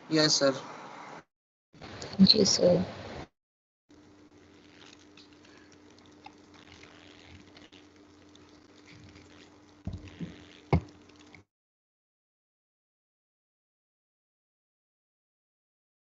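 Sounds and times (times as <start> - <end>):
faint microphone hiss and hum: 3.9 - 11.4.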